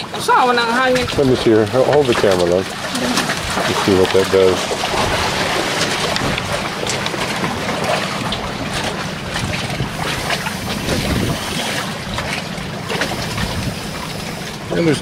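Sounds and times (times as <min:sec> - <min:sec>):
wind buffeting microphone: 0:02.9 - 0:14.1.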